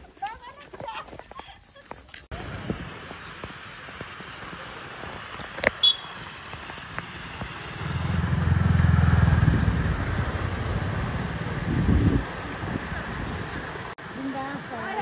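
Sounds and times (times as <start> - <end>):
vehicle engine revving: 2.3 - 14.0.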